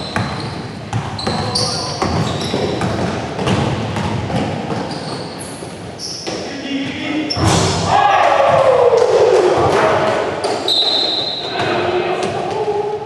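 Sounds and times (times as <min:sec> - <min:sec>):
basketball dribbling: 0:00.0 - 0:05.2
sneakers squeaking: 0:00.0 - 0:13.0.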